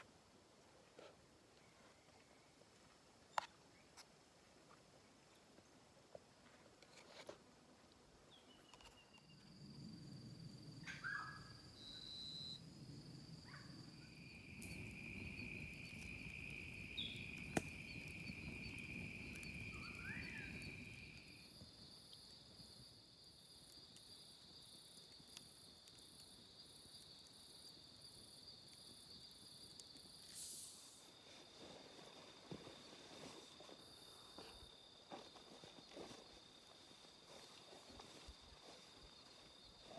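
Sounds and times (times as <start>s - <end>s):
insects trilling: 8.3s - 39.9s.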